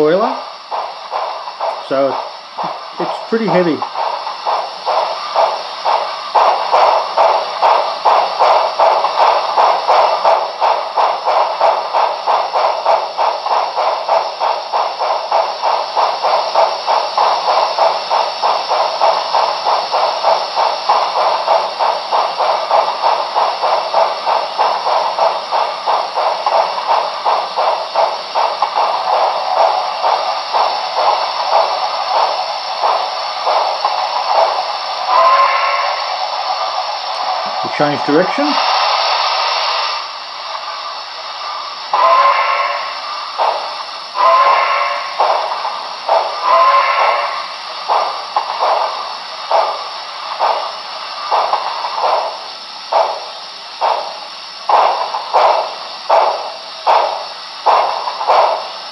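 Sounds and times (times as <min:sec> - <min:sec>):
steam exhaust chuffs with hiss: 0:00.0 - 0:58.9.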